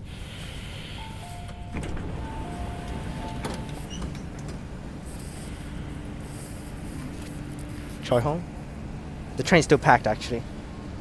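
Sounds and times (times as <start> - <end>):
low train hum: 0.0 - 11.0
sliding train doors knocking: 0.2 - 6.2.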